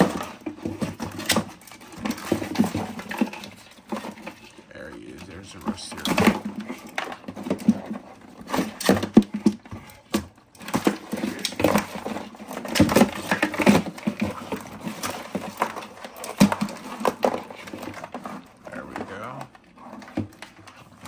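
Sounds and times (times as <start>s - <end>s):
crabs and tongs clattering: 0.0s - 21.0s.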